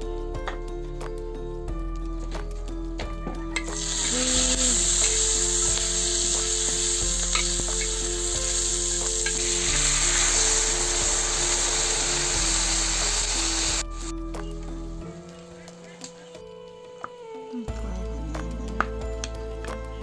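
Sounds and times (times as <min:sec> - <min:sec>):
food sizzling in hot oil: 0:03.6 - 0:14.1.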